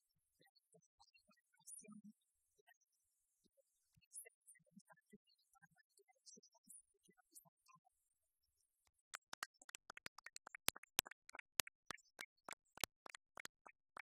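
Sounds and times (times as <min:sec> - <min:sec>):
small group applauding: 0:09.1 - 0:14.0.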